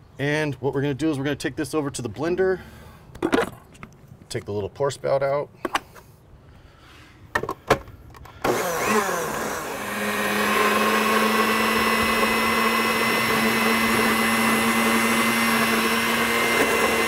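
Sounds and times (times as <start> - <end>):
blender running: 8.4 - 17.0.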